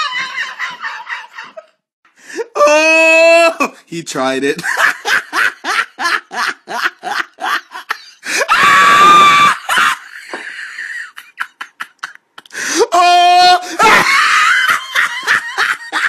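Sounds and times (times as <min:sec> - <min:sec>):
person screaming: 0:02.4 - 0:03.8, 0:08.3 - 0:10.0, 0:12.7 - 0:14.7
person laughing: 0:09.2 - 0:12.6.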